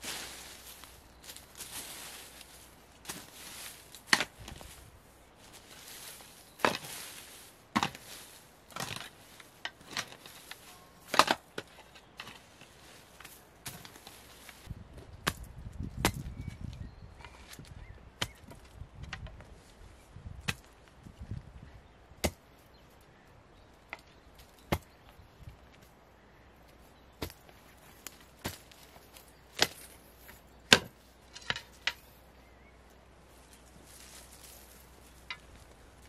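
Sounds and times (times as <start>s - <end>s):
hoe striking stony soil: 0.0s - 4.6s, 6.0s - 16.4s, 17.2s - 19.2s, 22.2s - 22.4s, 23.9s - 25.0s, 27.2s - 32.0s
dull thud of earth turned: 27.2s - 31.7s.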